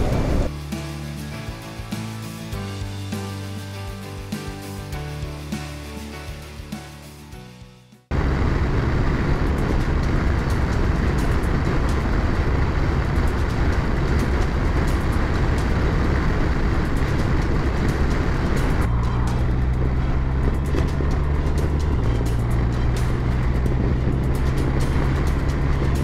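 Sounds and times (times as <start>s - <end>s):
wind and road noise: 0.0s - 0.6s, 8.1s - 26.0s
motorcycle engine running: 8.1s - 26.0s.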